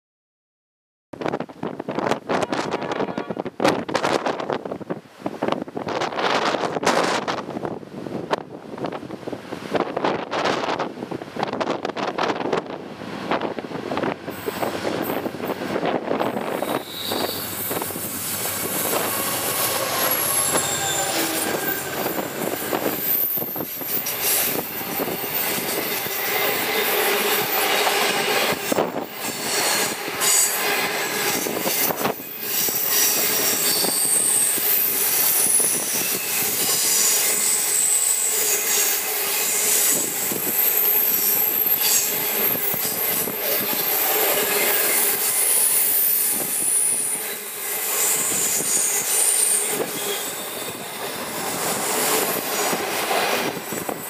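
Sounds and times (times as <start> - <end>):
train wheels squealing: 16.2 - 54.0.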